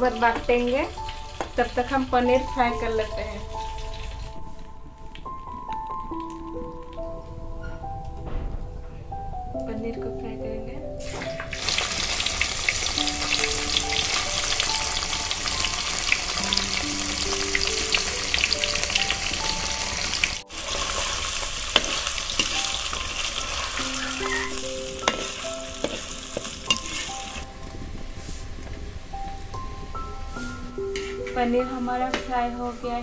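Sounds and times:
cheese sizzling in hot oil: 0.0s - 4.4s, 11.0s - 27.5s.

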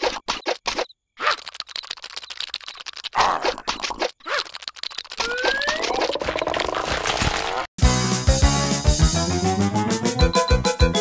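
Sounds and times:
fast pulsing cartoon sound effect: 4.3s - 7.0s
bouncy keyboard music with deep bass: 7.9s - 11.0s.

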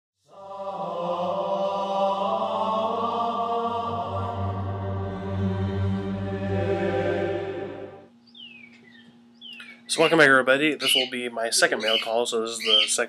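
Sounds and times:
steady low drone: 0.3s - 8.1s
sung chant: 0.3s - 8.1s.

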